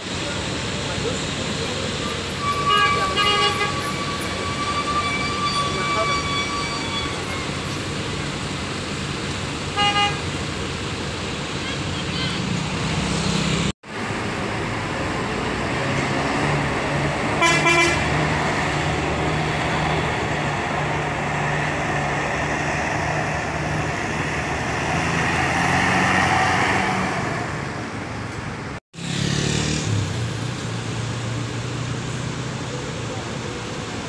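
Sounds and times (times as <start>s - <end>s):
bus diesel engine: 0.0s - 34.0s
short horn honk: 17.4s - 18.1s.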